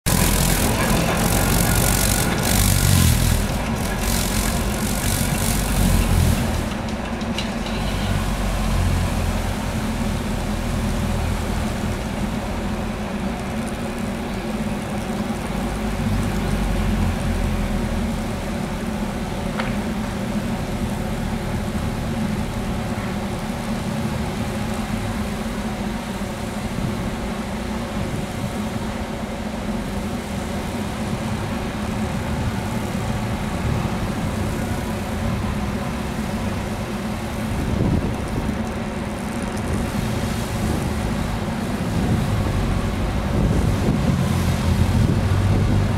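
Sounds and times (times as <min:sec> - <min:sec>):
tram brooms sweeping snow: 0:00.0 - 0:17.9.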